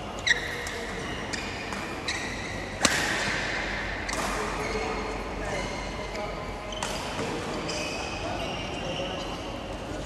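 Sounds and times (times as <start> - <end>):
rackets hitting shuttlecock: 1.6 - 4.9, 6.8 - 7.6.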